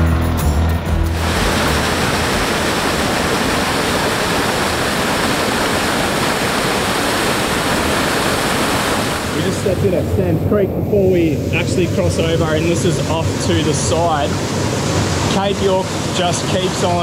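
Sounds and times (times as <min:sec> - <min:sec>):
music with heavy bass: 0:00.0 - 0:01.9
waterfall rushing over rocks: 0:01.1 - 0:10.0, 0:11.6 - 0:17.0.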